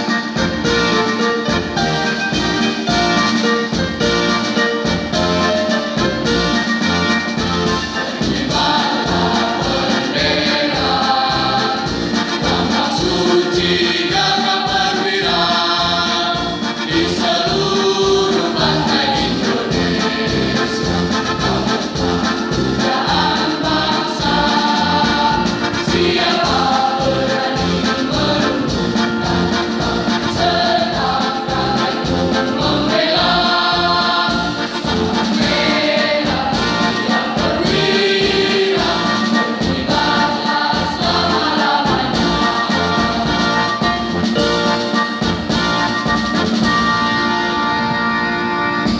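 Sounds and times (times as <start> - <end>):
school choir singing: 7.9 - 44.9
electronic keyboard with beat: 18.6 - 48.1.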